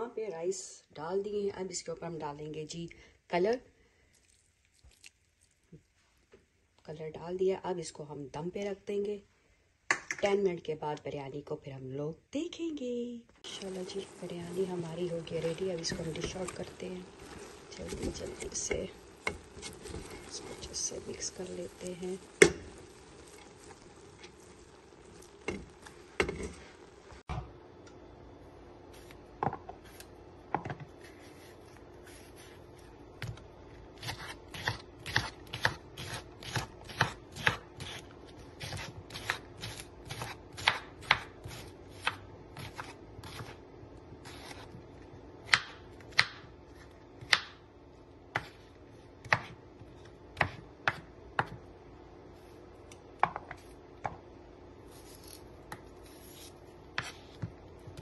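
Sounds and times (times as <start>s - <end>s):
faint steady hum: 0.0s - 58.0s
knife chopping on wooden board: 34.0s - 38.0s, 38.6s - 43.6s, 49.2s - 49.6s, 50.4s - 51.6s.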